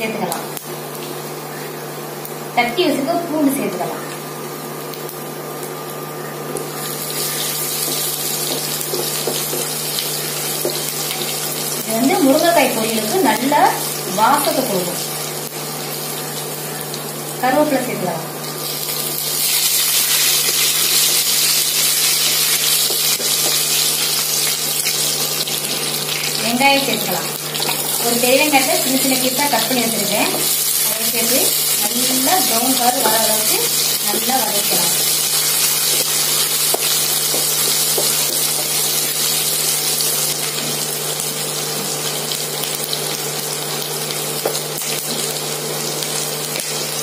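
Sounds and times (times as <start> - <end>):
garlic sizzling in hot oil: 0.1 - 47.0.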